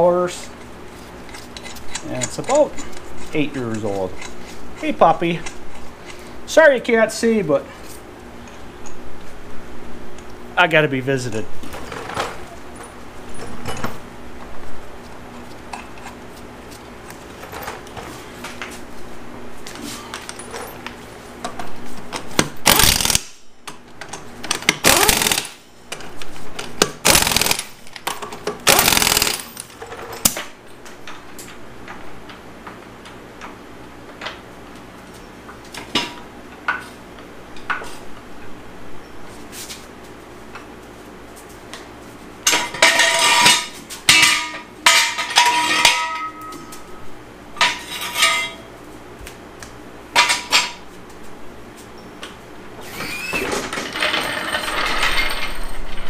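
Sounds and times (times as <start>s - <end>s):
impact wrench bursts: 22.6s - 23.4s, 24.5s - 25.6s, 26.8s - 27.8s, 28.6s - 29.6s
metal clanks of floor jack: 42.5s - 46.8s, 47.6s - 48.7s, 53.0s - 56.0s.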